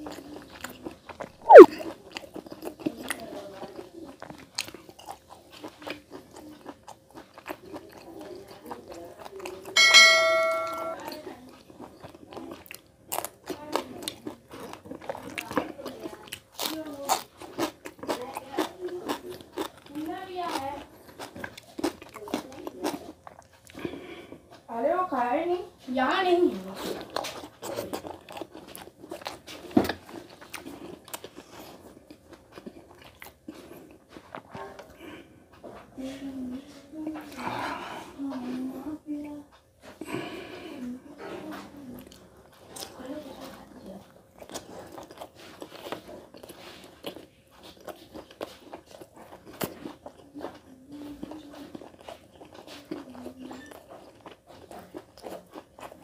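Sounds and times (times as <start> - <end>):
person chewing food: 0.0 - 24.7, 26.5 - 36.0, 39.5 - 56.0
mouth clicks: 1.4 - 1.7.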